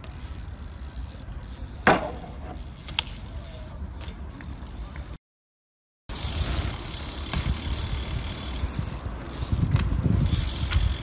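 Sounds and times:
outdoor background noise: 0:00.0 - 0:05.2, 0:06.1 - 0:11.0
bike landing thud: 0:01.8 - 0:02.6, 0:07.2 - 0:07.7
metallic clicks from bike: 0:02.6 - 0:03.3, 0:04.0 - 0:05.1, 0:06.8 - 0:11.0.

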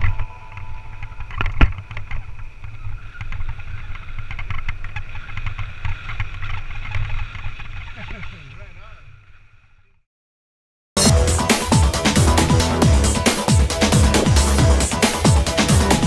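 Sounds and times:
low rumbling noise: 0:11.1 - 0:16.0.

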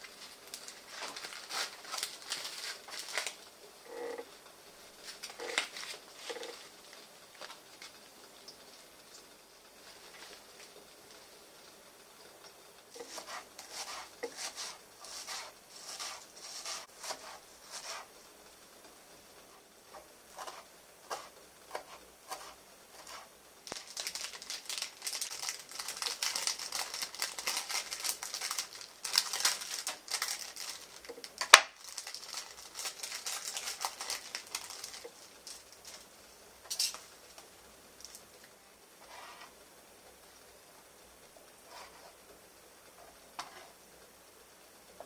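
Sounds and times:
plastic packaging crinkling: 0:00.0 - 0:04.1, 0:05.0 - 0:08.0, 0:23.6 - 0:36.1
sharp crack: 0:31.4 - 0:31.9.

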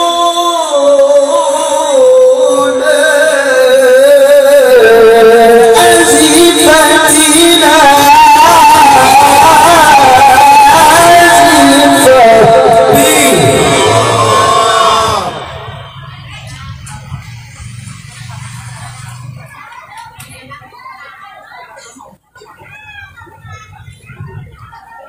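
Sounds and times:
man reciting melodically into microphone: 0:00.0 - 0:15.7.

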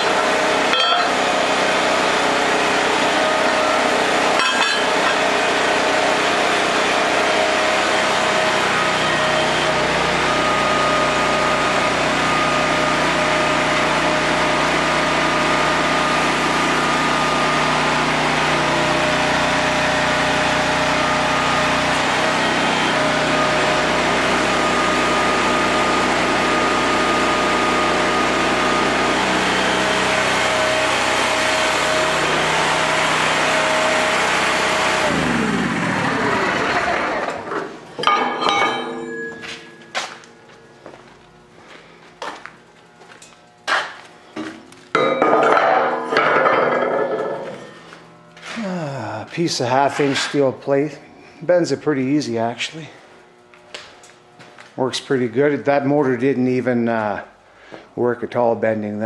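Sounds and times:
thin steady whine: 0:00.0 - 0:02.0, 0:02.6 - 0:05.5, 0:35.1 - 0:58.2
small gasoline engine running: 0:00.0 - 0:38.0, 0:45.0 - 0:49.9.

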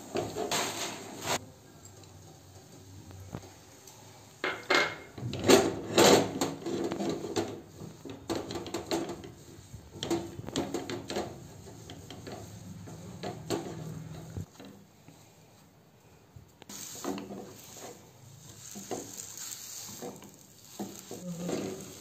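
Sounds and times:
spoon scraping nonstick pan: 0:17.0 - 0:22.0.

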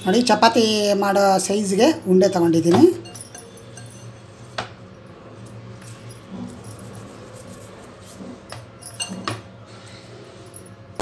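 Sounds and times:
hands kneading dough: 0:05.9 - 0:08.8.

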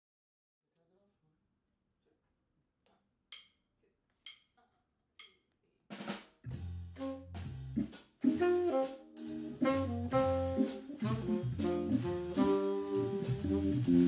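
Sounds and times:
jazz drum kit: 0:05.9 - 0:14.0
organ bass notes: 0:06.5 - 0:14.0.

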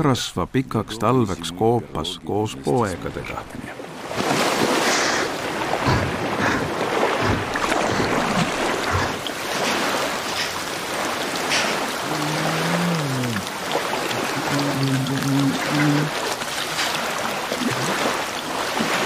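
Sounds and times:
lake water lapping: 0:00.8 - 0:19.0
water splashes: 0:00.8 - 0:19.0.

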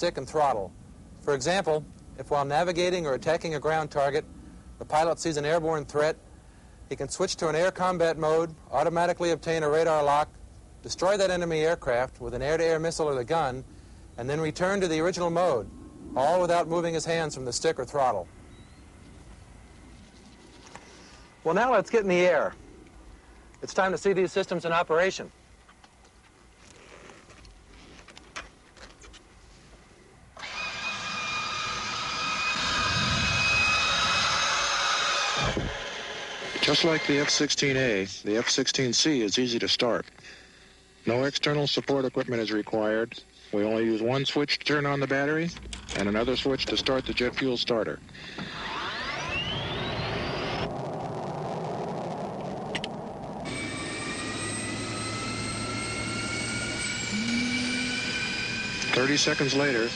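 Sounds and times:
jet engine starter whine: 0:30.4 - 0:37.8, 0:45.5 - 0:59.9
steady rushing noise: 0:45.6 - 0:59.9.

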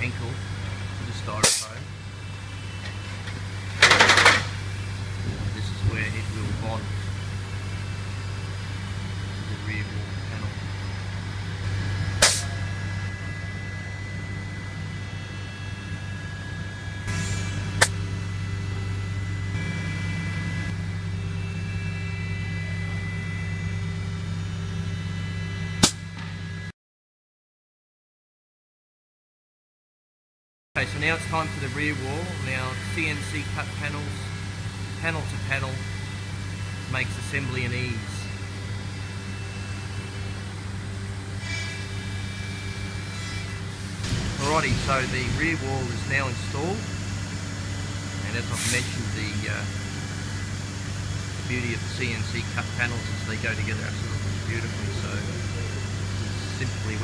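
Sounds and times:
faint high whine: 0:00.0 - 0:26.7, 0:30.8 - 0:57.0
low workshop hum: 0:00.0 - 0:26.7, 0:30.8 - 0:57.0
sharp click: 0:01.4 - 0:01.7, 0:12.2 - 0:12.5, 0:25.8 - 0:26.3.

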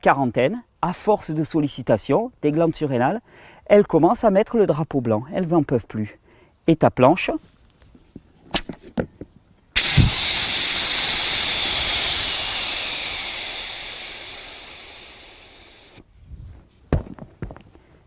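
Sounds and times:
air hissing from valve: 0:09.8 - 0:16.0.

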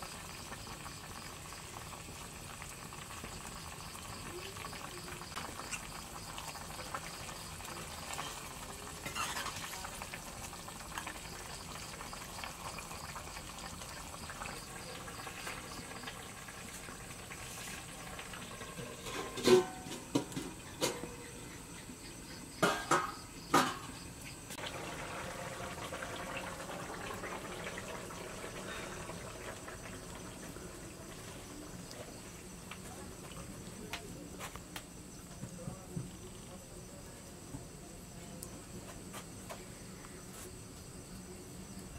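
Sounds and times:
curry simmering and bubbling: 0:00.0 - 0:34.4
metal pan and ladle clanking: 0:18.6 - 0:21.3, 0:22.6 - 0:24.0.

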